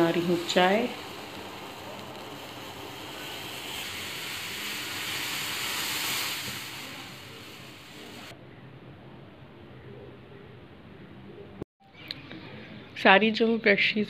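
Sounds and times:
pan hissing on gas burner: 0.0s - 8.3s.

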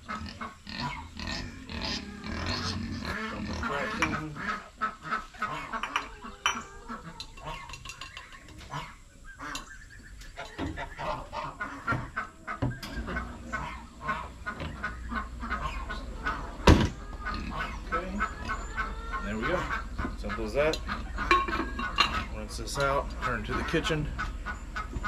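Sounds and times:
chickens clucking: 0.0s - 25.0s
ducks honking: 0.0s - 25.0s.

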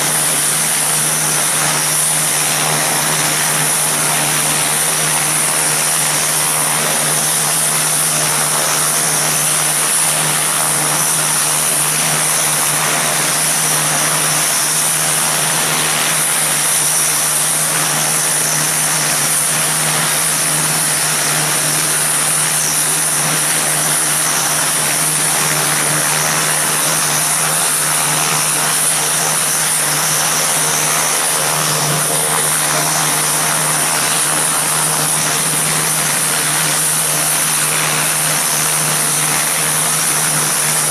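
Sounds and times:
propeller drone: 0.0s - 40.9s
turbine whine: 0.0s - 40.9s.

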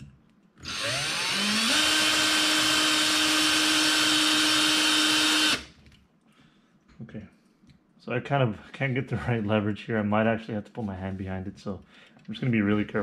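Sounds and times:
cordless drill whine: 0.6s - 5.7s.

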